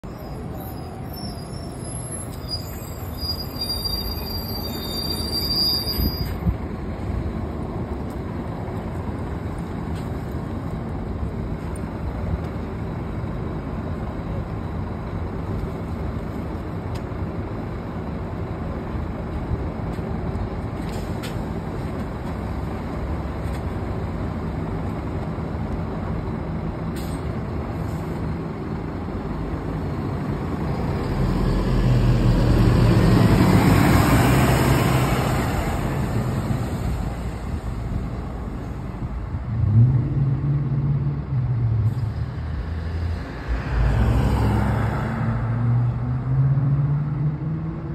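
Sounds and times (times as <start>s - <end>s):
bus brake squeal: 0.0s - 6.5s
bus engine idling: 0.0s - 39.6s.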